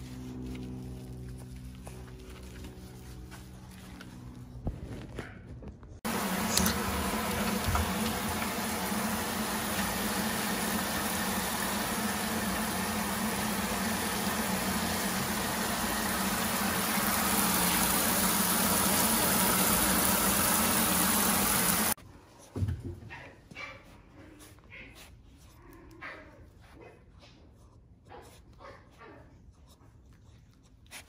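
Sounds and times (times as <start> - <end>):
machine hum with hiss: 6.1 - 22.0.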